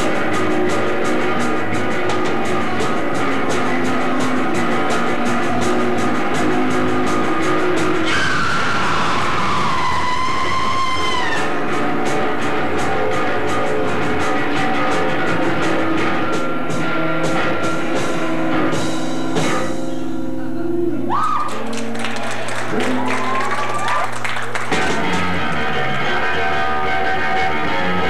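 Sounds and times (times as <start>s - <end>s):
fast drum beat: 0.0s - 19.8s, 22.5s - 25.4s
sustained guitar: 0.0s - 23.4s, 24.5s - 28.0s
noise punk band playing loud: 0.0s - 28.0s
high screeching tone sliding down: 8.0s - 11.6s.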